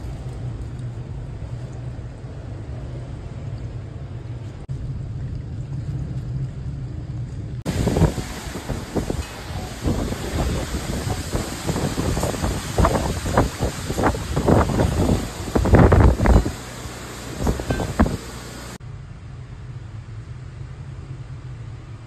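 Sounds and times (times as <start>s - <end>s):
strong wind rumbling: 0.0s - 18.8s
churning water: 5.0s - 18.8s
wind buffeting microphone: 5.0s - 18.8s.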